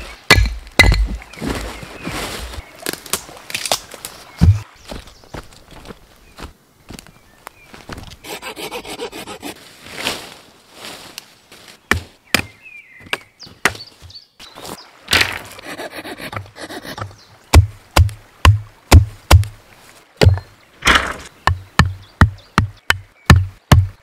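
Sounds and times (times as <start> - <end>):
saw cutting wood: 8.2 - 9.6, 15.6 - 17.1.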